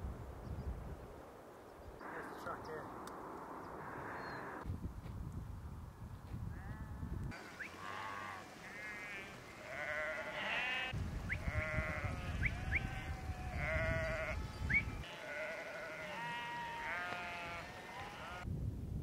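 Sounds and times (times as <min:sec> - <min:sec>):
sheep and goats bleating: 0:06.5 - 0:18.5.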